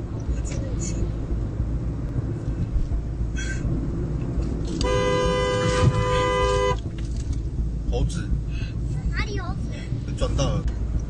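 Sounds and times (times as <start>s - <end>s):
car road and engine rumble: 0.0s - 11.0s
two-tone car horn: 4.8s - 6.9s.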